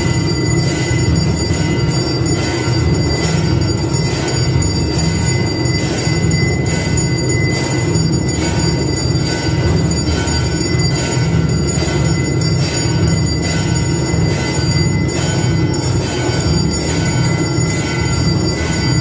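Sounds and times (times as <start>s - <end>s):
bells ringing: 0.0s - 19.0s
drums beating: 0.0s - 19.0s.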